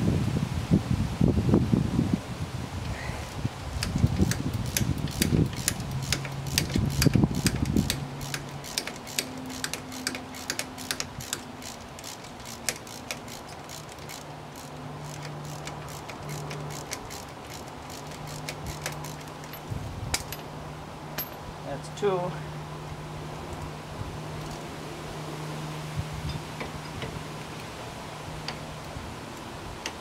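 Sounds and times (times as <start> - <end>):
ratchet wrench clicking: 3.8 - 20.4.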